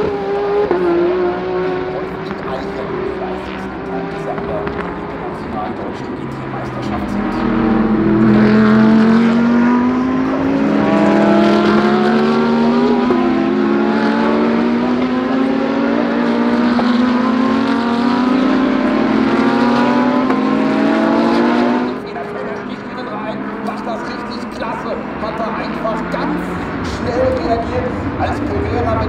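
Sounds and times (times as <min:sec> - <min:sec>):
race car engine accelerating: 0:00.0 - 0:29.0.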